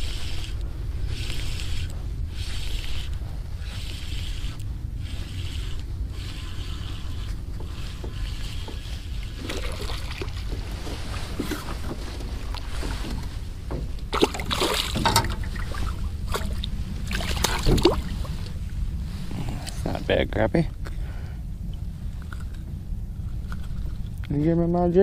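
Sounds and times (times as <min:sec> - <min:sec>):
fishing reel whirring: 0:00.0 - 0:10.5
wind on microphone: 0:00.0 - 0:25.0
fish splashing: 0:07.6 - 0:18.6.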